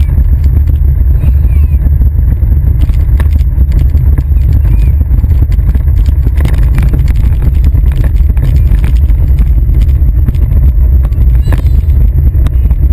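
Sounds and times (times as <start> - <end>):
toy car wheels rumbling on pavement: 0.0 - 12.9.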